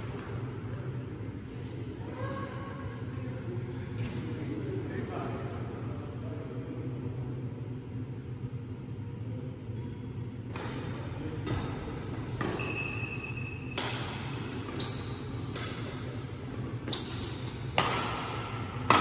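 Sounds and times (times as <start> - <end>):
racket hitting shuttlecock: 13.7 - 19.0.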